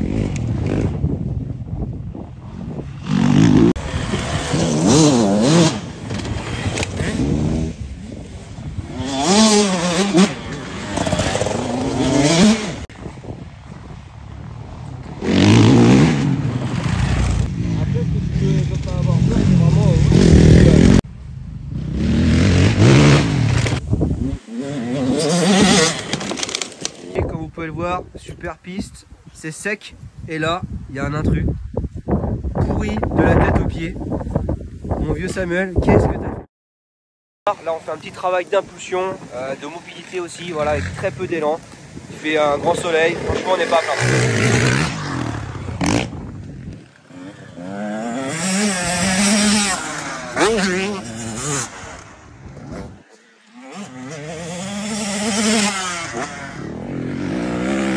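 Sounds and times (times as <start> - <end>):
dirt bike engine revving: 2.9 - 12.9, 15.2 - 21.0, 21.8 - 26.1, 42.6 - 46.4, 47.0 - 57.9.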